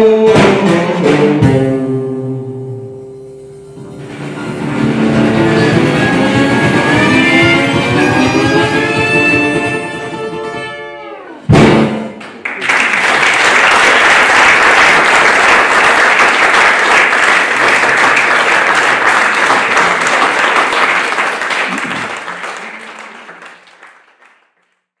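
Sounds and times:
audience applauding: 12.2 - 24.9.

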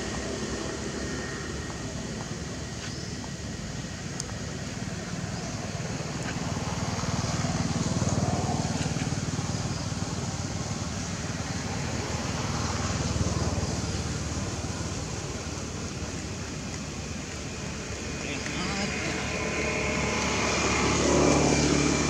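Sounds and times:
steady rain hiss: 3.4 - 20.8.

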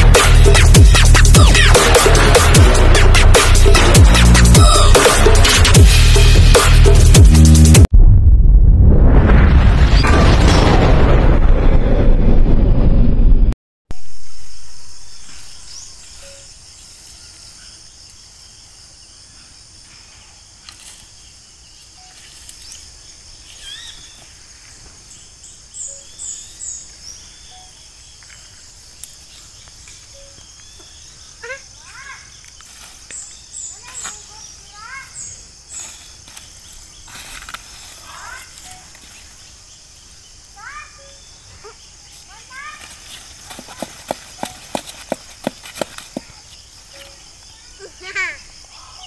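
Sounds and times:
loud electronic music: 0.0 - 7.8
deep boom: 5.8 - 13.6
high insect drone: 13.9 - 49.0
bird chirps and calls: 23.4 - 24.2.

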